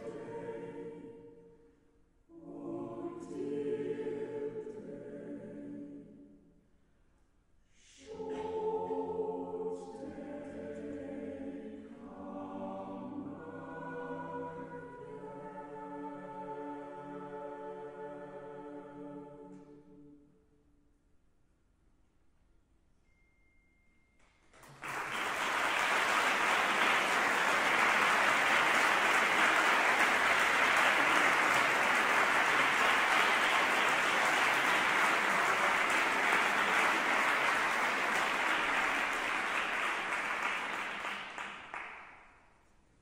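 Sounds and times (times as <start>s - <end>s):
audience applauding: 24.6s - 42.3s.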